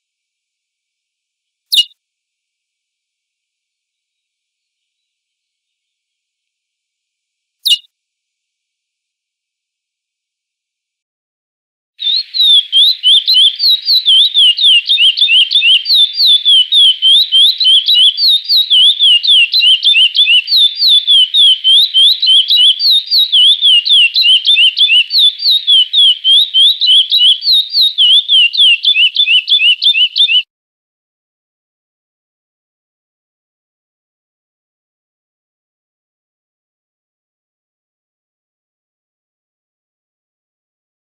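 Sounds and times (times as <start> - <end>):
finch singing whistled notes: 1.7 - 1.9, 7.6 - 7.9, 12.0 - 30.5.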